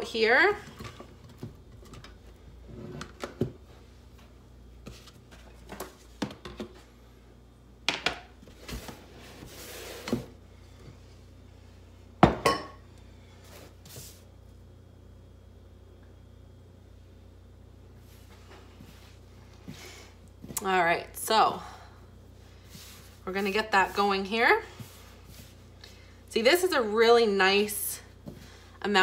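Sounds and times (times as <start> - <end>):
soft rubbing of dough: 13.1 - 14.6, 17.9 - 20.6, 22.1 - 26.8.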